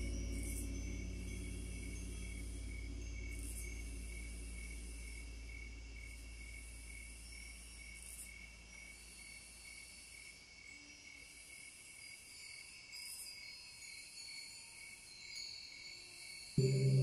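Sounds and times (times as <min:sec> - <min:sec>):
high pulsing chirp: 0:00.0 - 0:07.7, 0:16.6 - 0:17.0
low drone: 0:00.0 - 0:07.9, 0:16.6 - 0:17.0.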